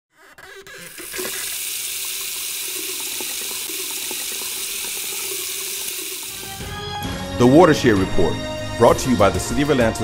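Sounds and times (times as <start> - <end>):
water running and splashing: 0.8 - 6.6.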